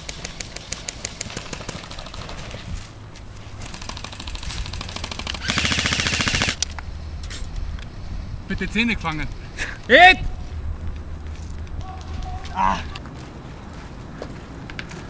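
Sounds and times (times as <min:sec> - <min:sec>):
airsoft rifle rapid shots: 0:00.2 - 0:02.6, 0:03.6 - 0:06.6.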